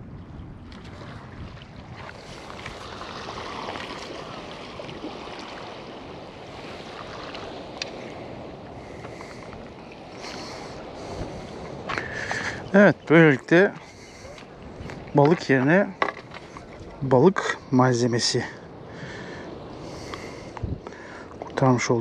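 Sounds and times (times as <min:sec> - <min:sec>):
wind buffeting microphone: 0:00.0 - 0:22.0
waves washing against stone pier: 0:00.6 - 0:17.6.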